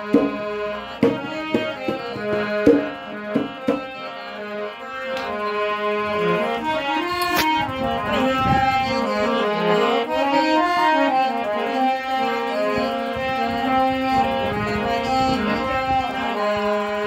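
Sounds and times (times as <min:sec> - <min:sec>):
harmonium playing: 0:00.0 - 0:17.0.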